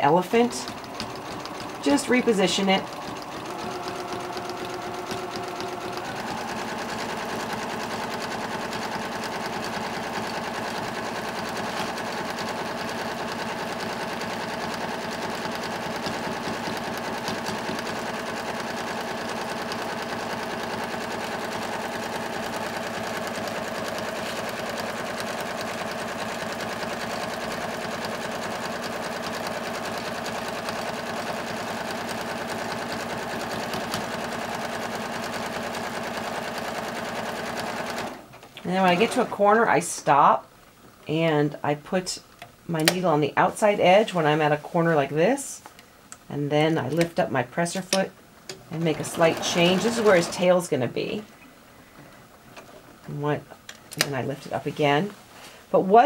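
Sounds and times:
sewing machine running: 0:00.1 - 0:39.6, 0:48.6 - 0:50.6.

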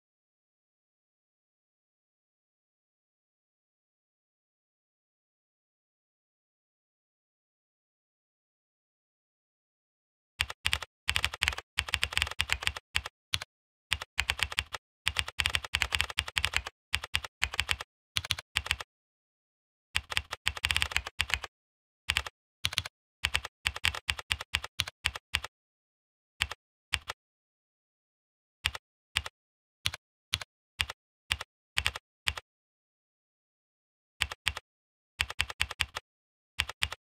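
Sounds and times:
typing on computer keyboard: 0:10.4 - 0:18.9, 0:20.0 - 0:21.5, 0:22.1 - 0:25.5, 0:26.4 - 0:27.2, 0:28.7 - 0:29.3, 0:29.9 - 0:32.4, 0:34.2 - 0:34.6, 0:35.2 - 0:36.0, 0:36.6 - 0:37.0.

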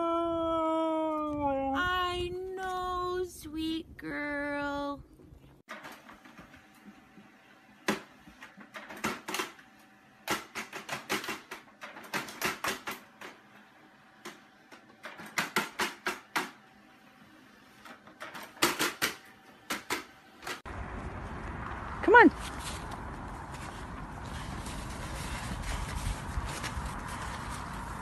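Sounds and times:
printer clicking and clattering: 0:10.3 - 0:13.4.

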